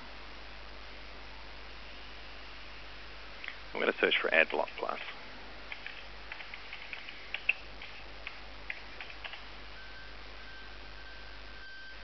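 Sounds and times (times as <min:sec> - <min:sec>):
keyboard keys clicking: 0:05.7 - 0:09.4
faint steady high tone: 0:09.6 - 0:12.0.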